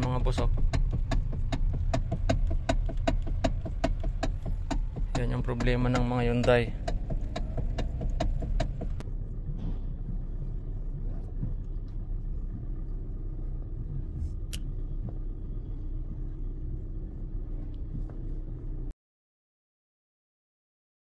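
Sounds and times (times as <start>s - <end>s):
steering column knocking: 0.0s - 18.6s
steady low rumble: 0.0s - 18.9s.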